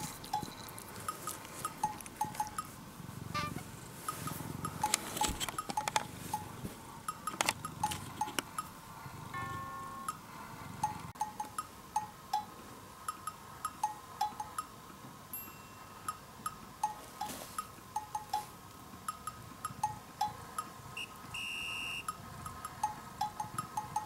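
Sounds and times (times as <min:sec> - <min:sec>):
high held tone: 0:09.3 - 0:10.3
playful bell-like music: 0:09.4 - 0:12.5, 0:15.3 - 0:17.3.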